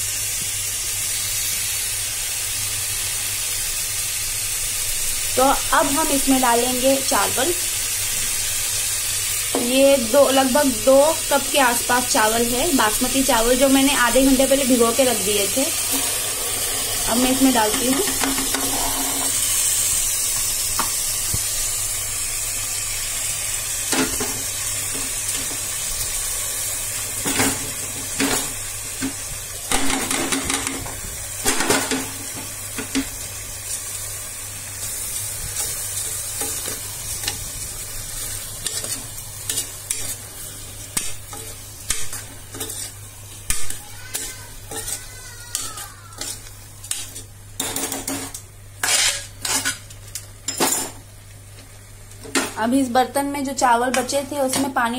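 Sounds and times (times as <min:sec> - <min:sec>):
rice and vegetables sizzling in oil: 0:00.0 - 0:54.9
metal spatula scraping a pot: 0:18.0 - 0:19.4, 0:38.6 - 0:40.2, 0:41.3 - 0:48.0, 0:48.8 - 0:49.8.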